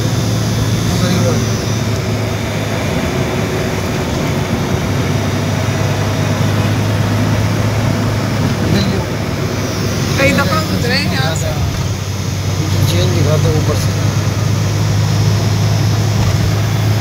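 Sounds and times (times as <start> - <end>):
car road noise at speed: 0.0 - 17.0.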